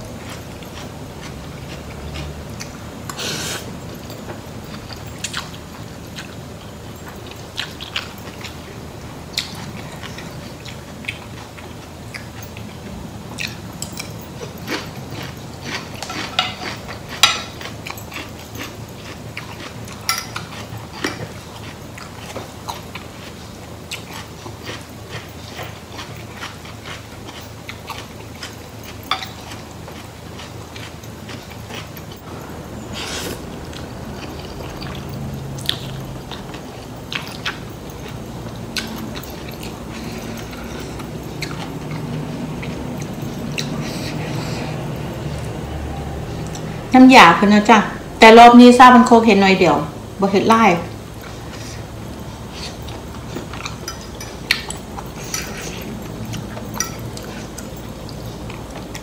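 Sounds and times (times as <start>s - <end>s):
chewing and biting food: 0.0s - 46.9s, 50.9s - 59.0s
cutlery clicking on plate: 16.0s - 18.0s.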